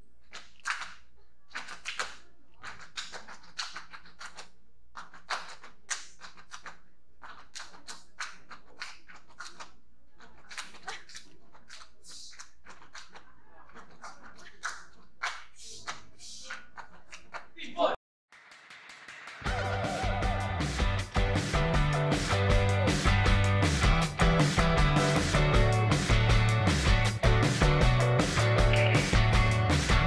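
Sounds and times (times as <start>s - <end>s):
hand claps: 0.3s - 9.7s, 18.4s - 19.9s, 22.2s - 30.0s.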